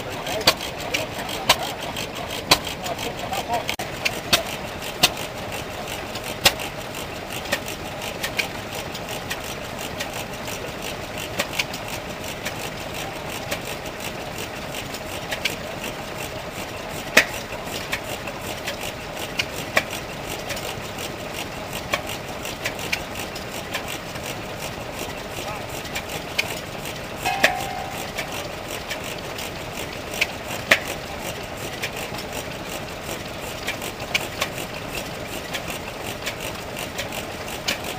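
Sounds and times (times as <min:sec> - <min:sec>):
stationary engine knocking: 0:00.0 - 0:28.0, 0:28.6 - 0:37.9.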